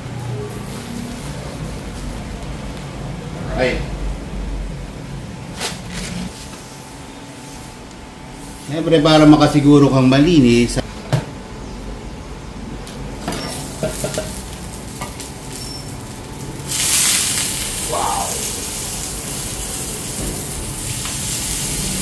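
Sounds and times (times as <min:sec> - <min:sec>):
fish sizzling on a griddle: 0:13.2 - 0:22.0.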